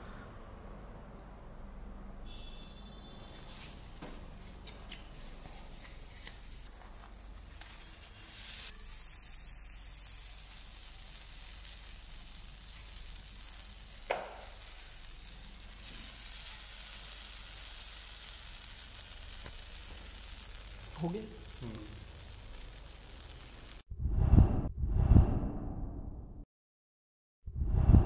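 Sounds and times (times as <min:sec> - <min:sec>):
sizzling on a hot griddle: 0:03.2 - 0:23.8
loud hiss: 0:07.8 - 0:23.8.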